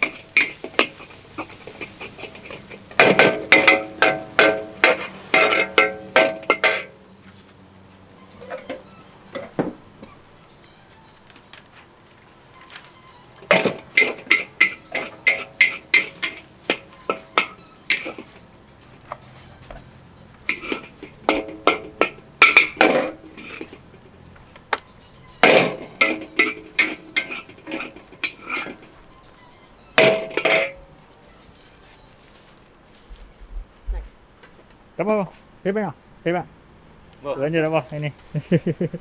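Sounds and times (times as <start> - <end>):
metal spatula clanging on wok: 0.0 - 7.0, 8.3 - 9.8, 13.4 - 18.4, 20.4 - 24.0, 24.7 - 29.0, 29.9 - 30.9.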